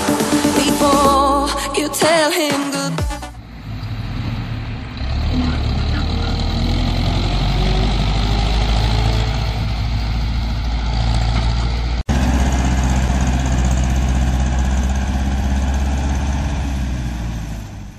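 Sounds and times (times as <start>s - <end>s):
tractor diesel engine running: 3.2s - 17.9s.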